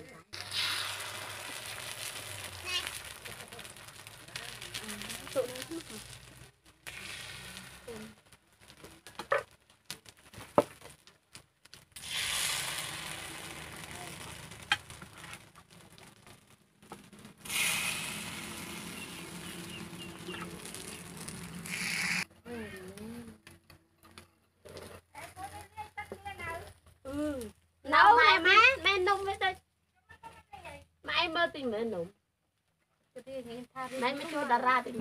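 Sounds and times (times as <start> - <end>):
batter sizzling in a pan: 0.1 - 22.4, 33.1 - 35.0.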